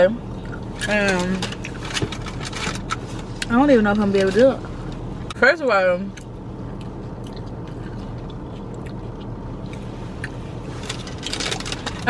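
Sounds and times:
car air conditioning hum: 0.0s - 12.0s
chewing clicks: 6.1s - 10.4s.

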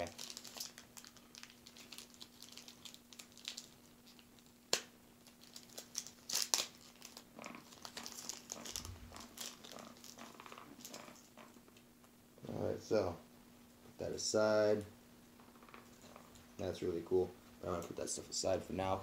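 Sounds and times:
plastic wrapping crinkling and tearing: 0.0s - 11.6s.

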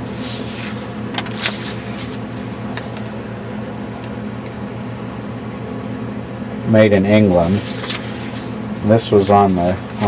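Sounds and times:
low steady hum: 0.0s - 10.0s
paper leaflets rustling: 0.1s - 3.1s, 7.4s - 10.0s.

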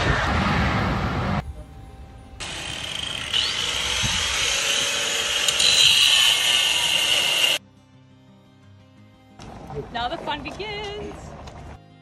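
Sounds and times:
power tool cutting metal: 2.4s - 7.6s.

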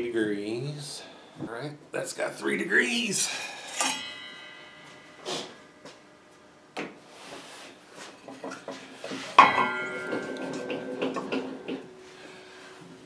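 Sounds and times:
metallic clank ringing: 3.5s - 6.5s, 9.4s - 12.8s
wood and metal knocking: 9.4s - 11.9s.

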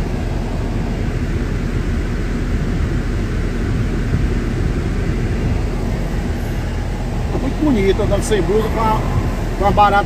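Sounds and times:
road and engine noise in cab: 0.0s - 10.0s.

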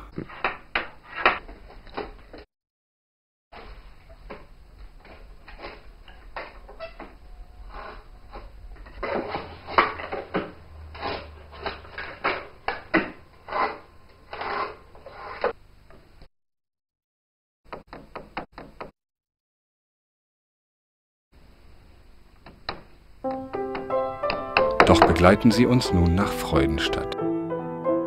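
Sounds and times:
scraping strokes and knocks: 3.6s - 15.6s
draw knife shaving wood: 10.9s - 15.6s.

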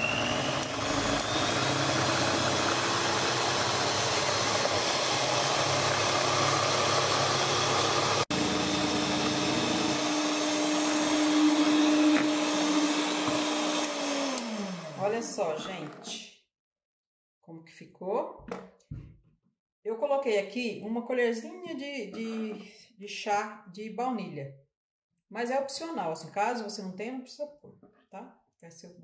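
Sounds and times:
electric hand mixer running: 0.0s - 15.8s.

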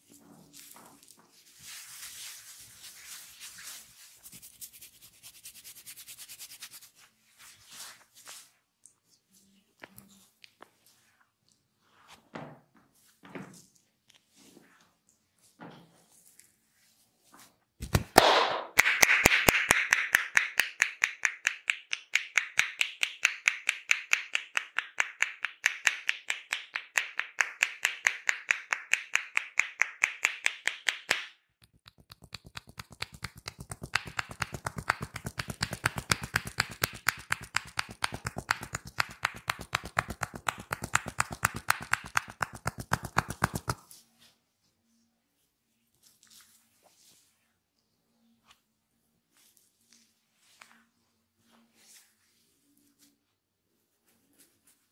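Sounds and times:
hands tapping on head: 17.8s - 43.8s.

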